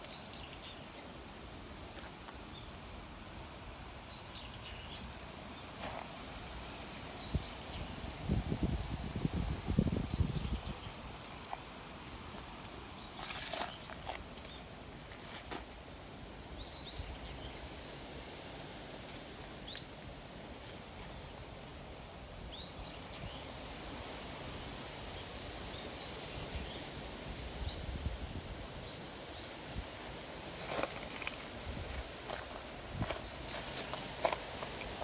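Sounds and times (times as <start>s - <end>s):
steady background hiss: 0.0s - 35.0s
small birds chirping: 4.0s - 6.2s, 9.5s - 15.5s, 28.7s - 35.0s.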